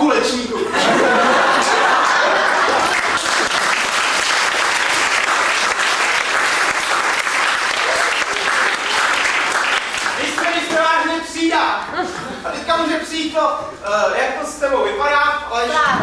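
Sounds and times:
audience applauding: 1.3s - 11.1s.

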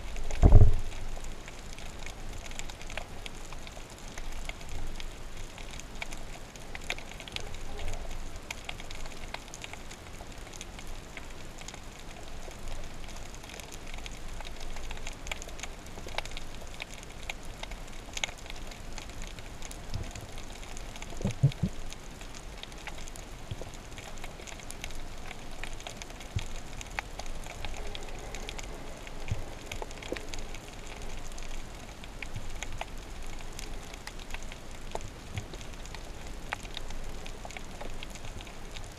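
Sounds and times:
underwater clicking crackle: 0.0s - 38.9s
low underwater thump: 0.4s - 0.8s.

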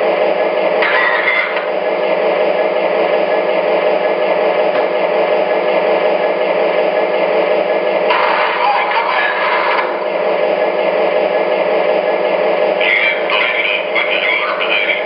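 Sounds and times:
diesel engine idle from speaker: 0.0s - 6.3s, 6.9s - 15.0s.

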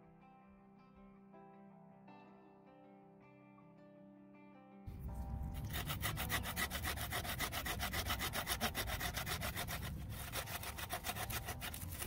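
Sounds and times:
bow saw cutting branch: 5.5s - 12.0s.

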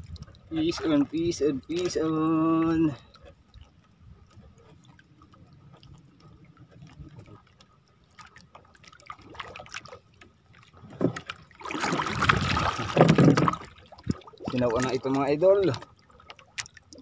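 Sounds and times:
fishing line ticks and rustles: 0.0s - 11.5s, 13.0s - 17.0s
loud water splashing: 11.1s - 15.8s.

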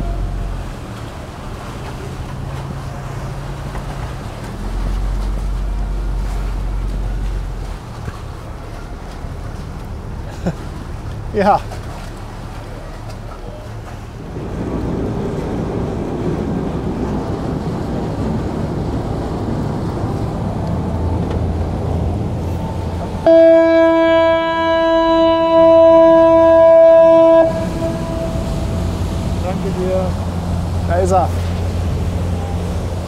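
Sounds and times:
steady rumble: 11.8s - 33.0s
ferry horn long blast: 23.2s - 29.5s.

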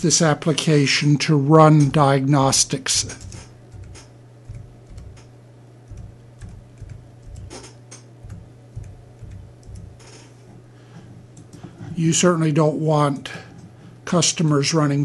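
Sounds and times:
steady low hum: 0.0s - 15.0s
computer keyboard typing: 3.1s - 5.3s, 5.9s - 10.2s.

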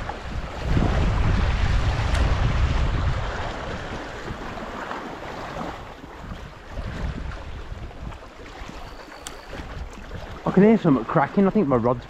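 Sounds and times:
sea water washing against rocks: 0.0s - 12.0s
wind buffeting microphone: 0.0s - 12.0s.

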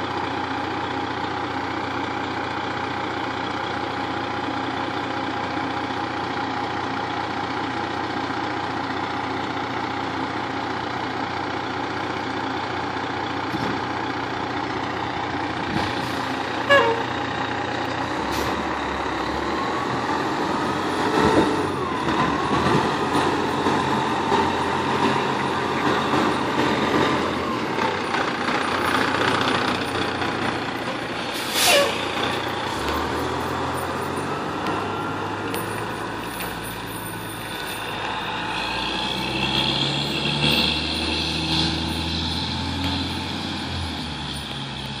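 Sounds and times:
diesel truck engine running: 0.0s - 45.0s
air brake hiss: 31.3s - 32.1s.

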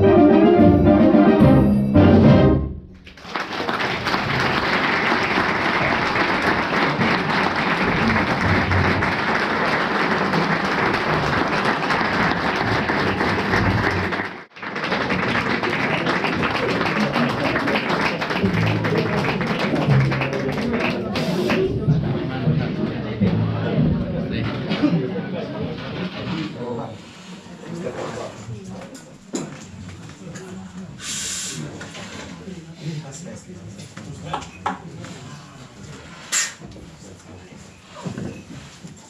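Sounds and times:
audience applauding: 3.0s - 21.9s.

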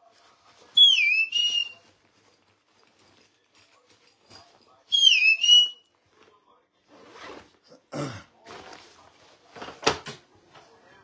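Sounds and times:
falling whistle: 0.8s - 1.8s, 4.9s - 5.8s.

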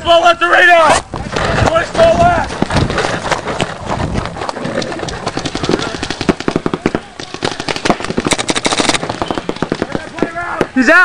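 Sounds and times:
paintball markers firing pops: 4.8s - 10.8s.

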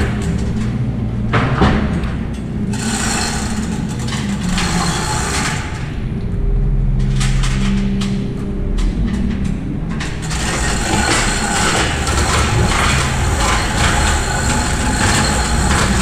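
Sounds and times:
steady low hum: 0.0s - 16.0s
chain rattling and clanking: 2.3s - 5.9s, 8.8s - 16.0s.

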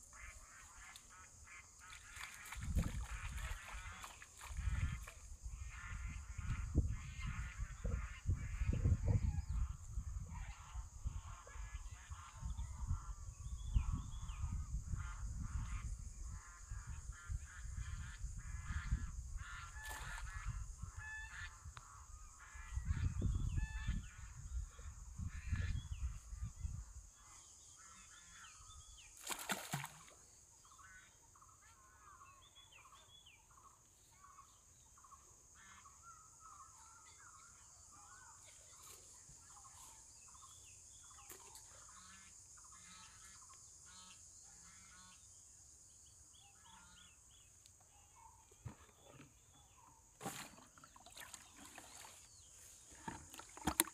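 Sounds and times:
domestic fowl calling: 15.0s - 25.8s.

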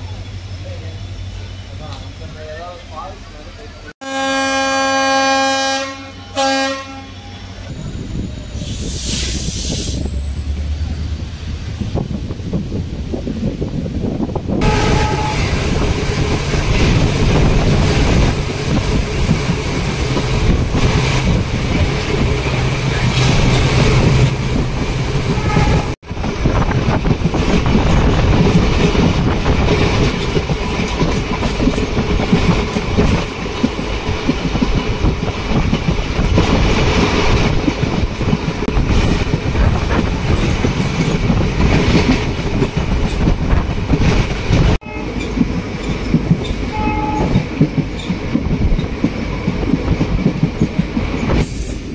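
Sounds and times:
train wheels rumbling on rails: 7.2s - 51.9s
rushing air: 7.7s - 30.7s, 47.8s - 51.9s.

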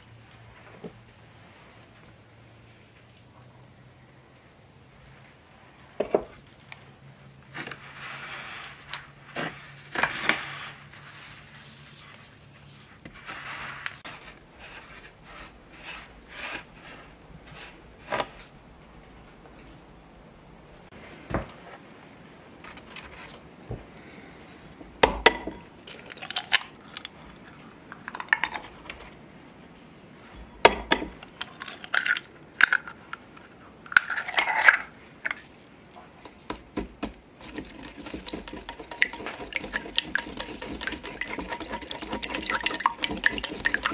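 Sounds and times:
butter rubbed into cornmeal: 7.8s - 18.2s, 36.7s - 43.9s
eggs cracking into a bowl: 25.0s - 27.2s, 27.9s - 29.0s, 30.6s - 33.3s, 36.2s - 43.9s.

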